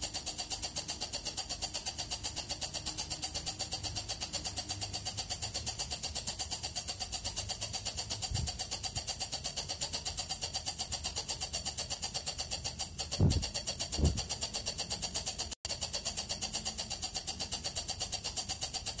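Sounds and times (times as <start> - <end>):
soft low thuds: 13.2 - 14.3.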